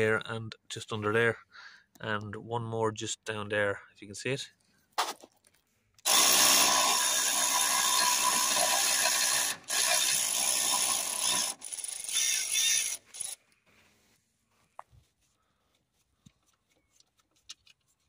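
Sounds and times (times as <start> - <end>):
ratchet wrench ratcheting: 6.1 - 13.4.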